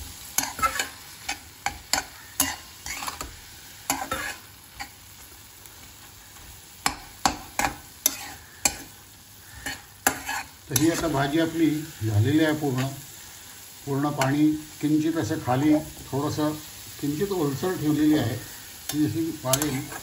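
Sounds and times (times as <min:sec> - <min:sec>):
faint sizzle: 0:00.0 - 0:20.0
spatula scraping a pan: 0:00.2 - 0:05.0, 0:06.4 - 0:13.1, 0:18.1 - 0:20.0.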